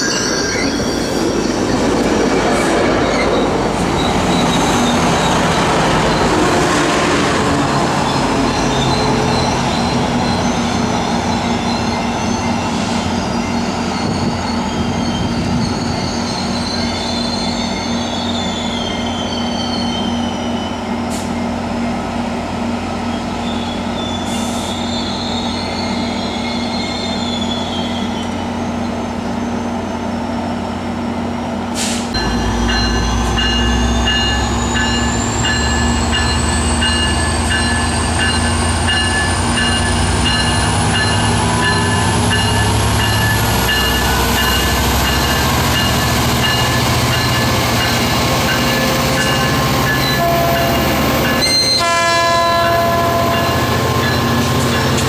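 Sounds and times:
locomotive bell ringing: 0.0 - 2.2, 32.2 - 55.0
diesel train engine hum: 27.6 - 55.0.

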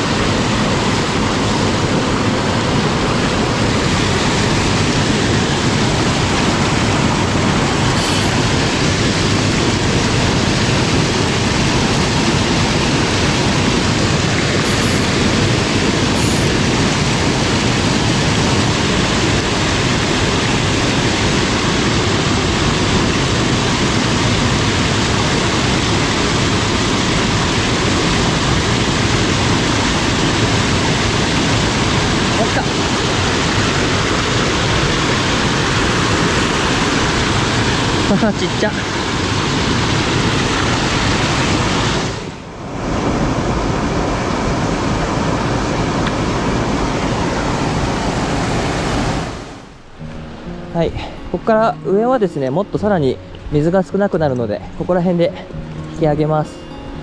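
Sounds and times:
stream rushing over rocks: 0.0 - 57.0.

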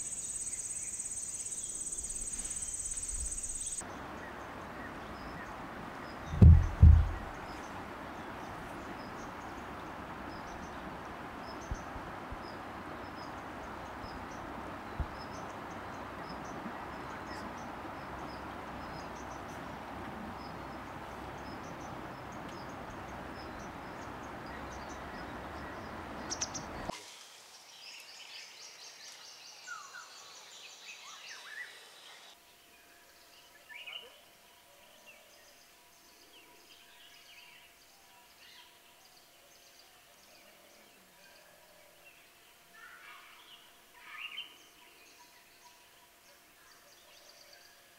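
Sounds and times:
birds calling: 0.0 - 26.9
steady hiss: 0.0 - 32.4.

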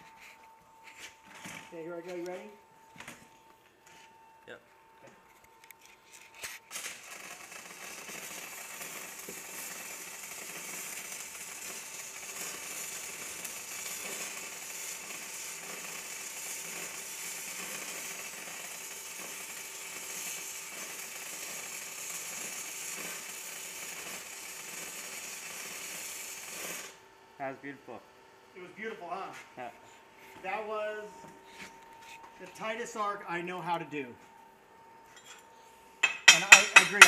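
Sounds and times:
welding arc crackling: 5.8 - 27.5, 36.0 - 37.0.

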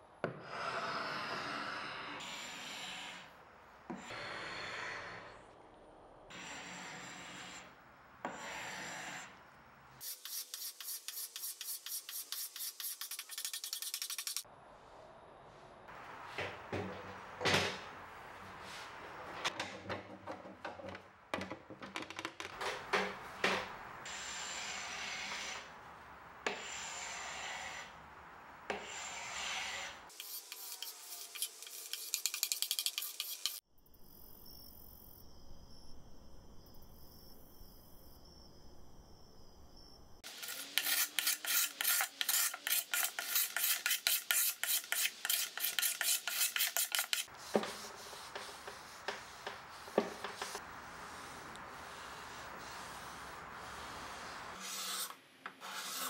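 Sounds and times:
scraper scraping wood: 40.2 - 56.0.

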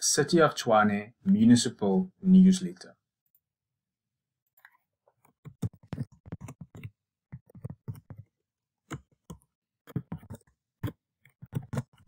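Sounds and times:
computer keyboard typing: 5.3 - 8.3.

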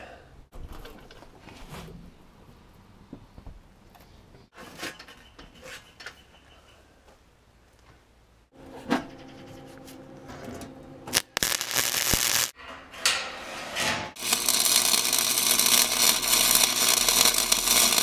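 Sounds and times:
welding arc crackling: 11.1 - 12.6, 14.2 - 18.0.

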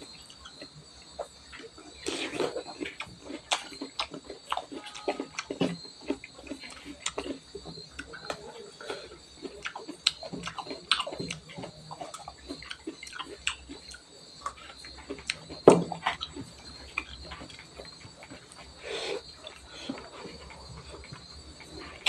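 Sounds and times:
chewing and wet mouth sounds: 0.0 - 22.0
faint high-pitched tone: 4.6 - 5.8.

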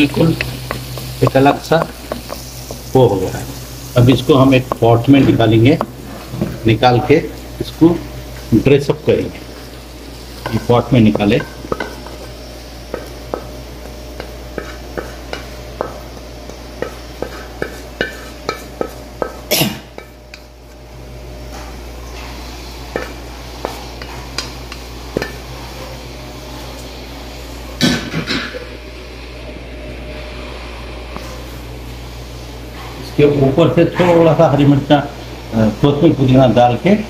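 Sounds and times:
spatula scraping a wok: 9.4 - 20.5, 21.4 - 26.8.

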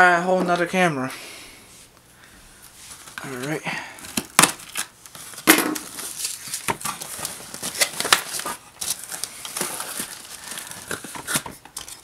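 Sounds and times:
packing peanuts crackling: 3.1 - 12.0.

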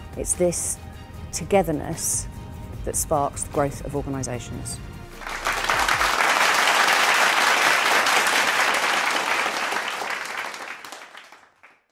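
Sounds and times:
audience applause: 5.2 - 11.9.

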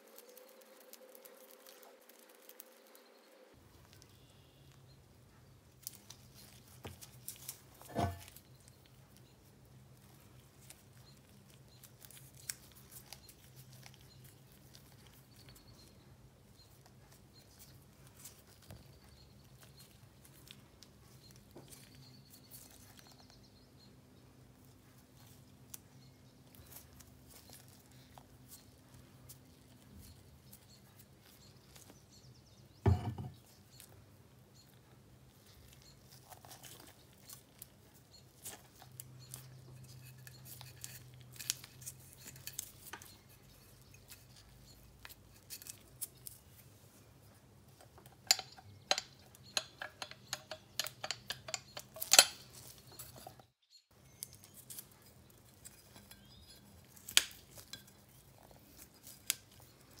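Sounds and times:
metal parts clicking and tapping: 5.8 - 8.4, 47.8 - 53.5.

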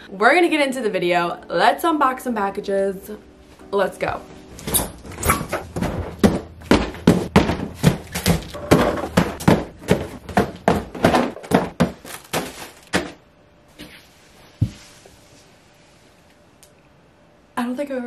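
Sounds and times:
cardboard boxes thunking down: 5.0 - 13.2.

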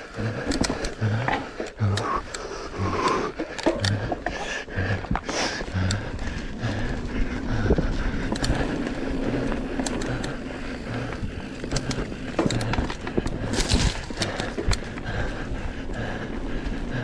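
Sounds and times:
bike knocking and rattling: 0.0 - 17.0
bike tyres rumbling on dirt: 0.0 - 17.0.

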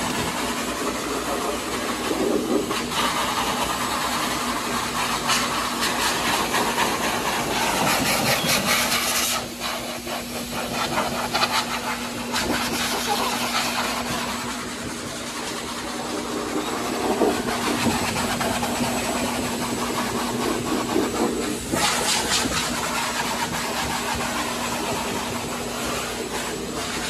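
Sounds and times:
blow dryer rushing air: 0.0 - 27.0.

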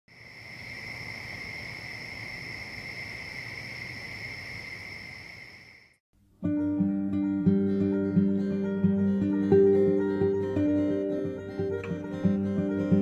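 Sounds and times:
crickets chirring: 0.1 - 6.0
acoustic guitar music: 6.2 - 13.0.

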